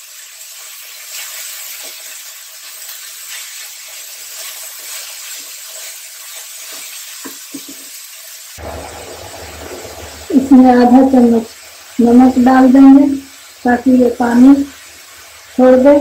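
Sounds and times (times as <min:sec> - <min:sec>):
apple frying sizzle: 0:00.0 - 0:16.0
spatula scraping and tapping: 0:06.7 - 0:07.9.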